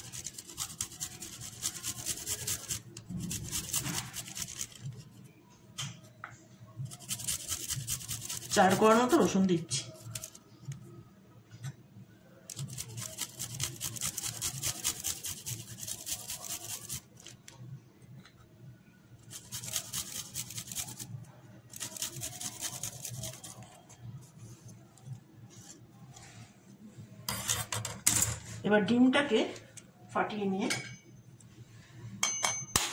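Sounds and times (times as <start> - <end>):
garlic grated on metal grater: 0.0 - 5.1, 6.9 - 10.4, 12.5 - 17.4, 19.2 - 23.9.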